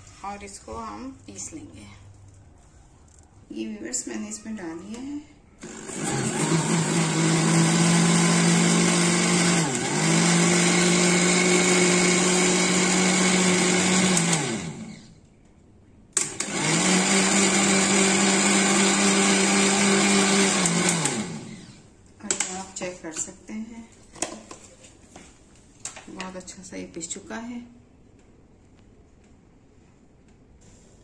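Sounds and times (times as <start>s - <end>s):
electric blender grinding: 5.6s - 15.1s, 16.2s - 21.8s.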